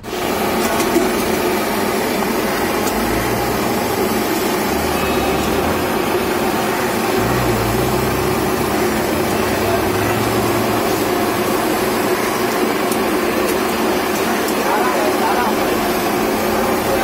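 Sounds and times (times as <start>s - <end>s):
street traffic noise: 0.0s - 17.0s.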